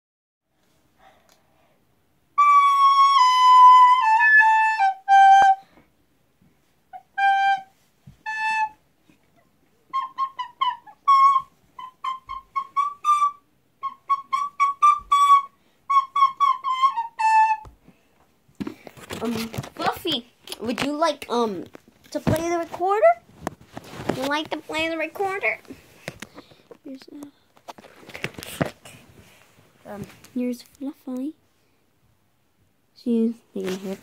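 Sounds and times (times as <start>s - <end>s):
recorder playing: 2.4s - 5.7s, 6.9s - 8.8s, 9.8s - 17.8s.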